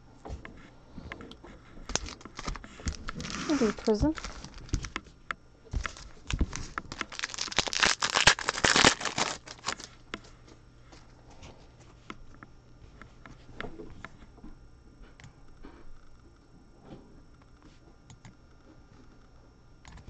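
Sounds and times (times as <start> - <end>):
foil wrapper tearing and crinkling: 1.9 - 5.0, 5.8 - 10.0.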